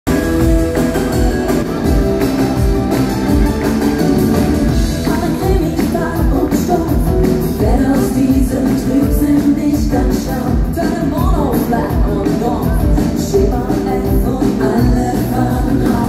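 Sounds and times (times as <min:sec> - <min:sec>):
pop-rock band playing: 0:00.0 - 0:16.0
electric guitar: 0:00.1 - 0:16.0
women singing: 0:05.0 - 0:16.0.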